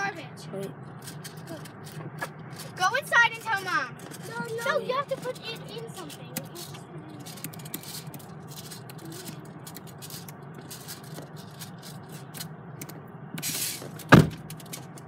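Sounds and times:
car interior hum: 0:00.0 - 0:15.0
loud thump: 0:14.1 - 0:14.4.

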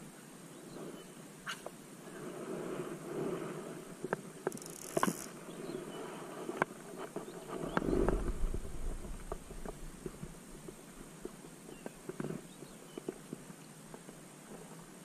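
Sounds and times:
low rumble: 0:07.6 - 0:10.7.

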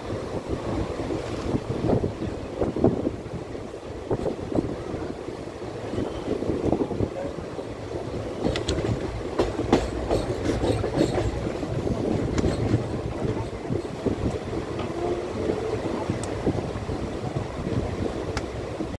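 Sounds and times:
train rumble from aboard: 0:00.0 - 0:18.9
wheels clicking over track: 0:08.4 - 0:15.1.

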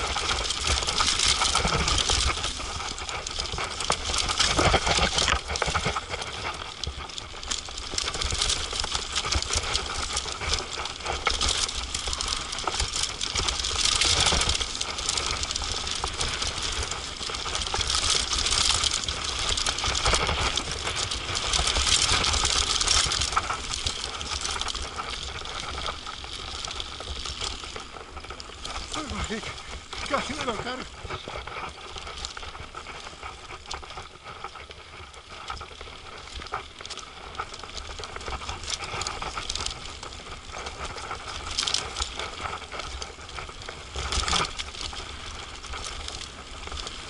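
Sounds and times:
mountain bike rattling: 0:00.0 - 0:47.0
tyres hissing on dirt: 0:28.6 - 0:31.5.

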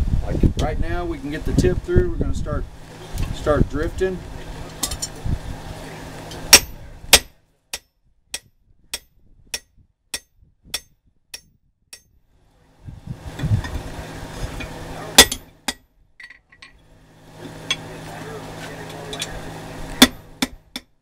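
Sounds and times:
hammer striking steel drift: 0:06.4 - 0:12.2, 0:14.6 - 0:15.8, 0:19.9 - 0:20.9.

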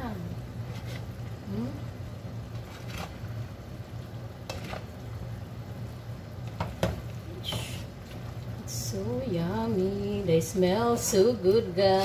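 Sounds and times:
low steady hum: 0:00.0 - 0:12.0
spatula scraping frying pan: 0:00.6 - 0:01.2, 0:02.5 - 0:03.3, 0:04.4 - 0:04.9.

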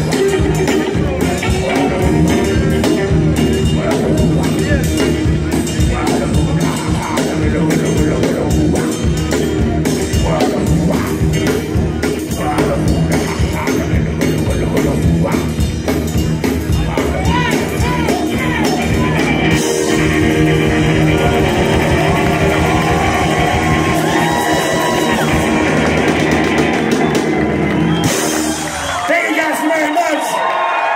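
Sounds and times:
live rockabilly band playing: 0:00.0 - 0:30.9
people shouting and yelling: 0:16.6 - 0:30.9.

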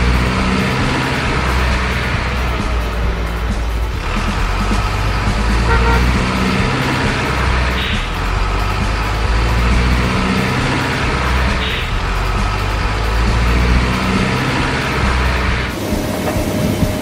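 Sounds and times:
truck engine rumbling: 0:00.0 - 0:17.0
truck horn toot: 0:05.4 - 0:08.4, 0:11.4 - 0:12.0.

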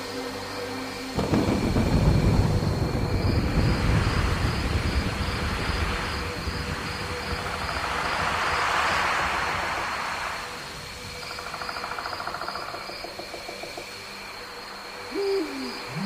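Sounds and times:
rain hissing: 0:00.0 - 0:16.0
thunder rumbling: 0:01.2 - 0:12.2.

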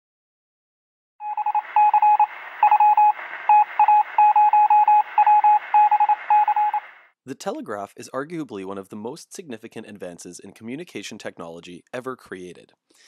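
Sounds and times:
morse code beeps: 0:01.2 - 0:07.0
radio static hiss: 0:01.3 - 0:07.1.

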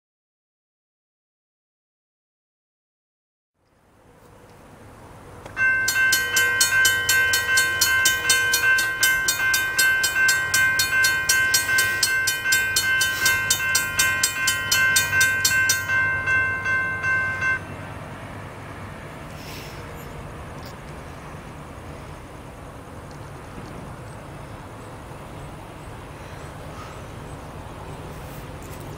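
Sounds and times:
railroad crossing bells ringing: 0:05.6 - 0:20.2.

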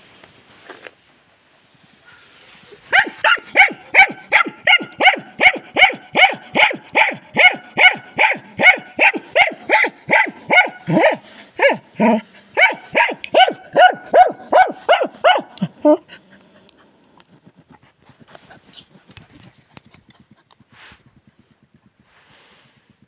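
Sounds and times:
dog barking rapidly: 0:02.9 - 0:16.0.

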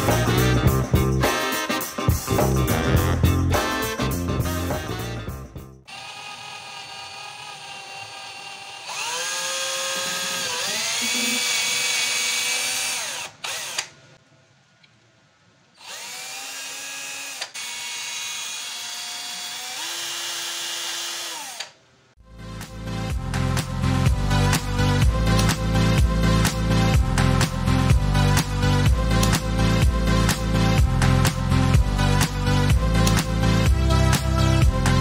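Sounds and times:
music: 0:00.0 - 0:05.9, 0:22.2 - 0:35.0
cordless drill boring: 0:05.9 - 0:14.0, 0:15.8 - 0:21.8.

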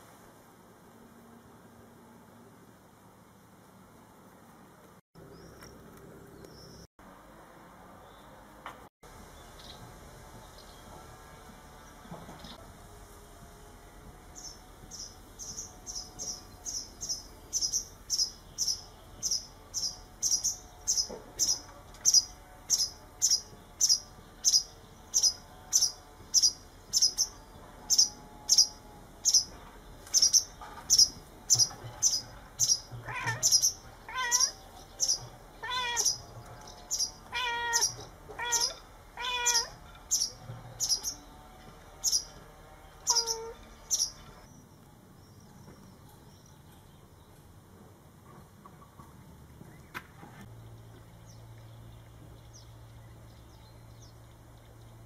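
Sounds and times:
cat meowing: 0:33.0 - 0:34.6, 0:35.6 - 0:36.2, 0:37.3 - 0:39.8, 0:43.1 - 0:43.6.

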